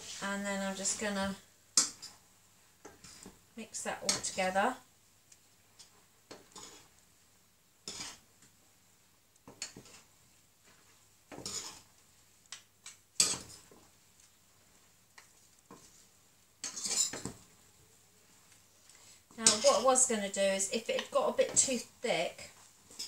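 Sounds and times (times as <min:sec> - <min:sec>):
utensils scraping a saucepan: 0:02.9 - 0:04.7, 0:05.8 - 0:07.0, 0:07.8 - 0:08.3, 0:10.7 - 0:11.9, 0:13.2 - 0:13.8, 0:16.6 - 0:17.4, 0:19.3 - 0:20.1.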